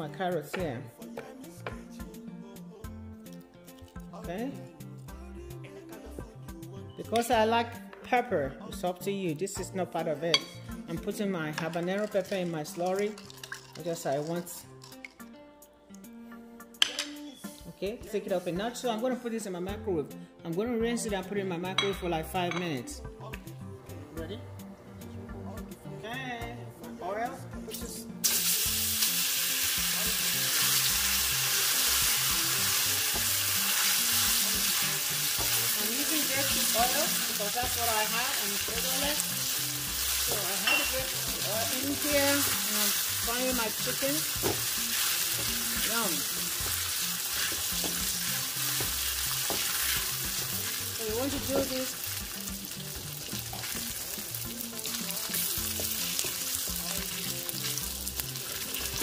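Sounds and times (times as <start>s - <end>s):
chicken sizzling in hot oil: 12.0s - 15.0s, 28.2s - 59.0s.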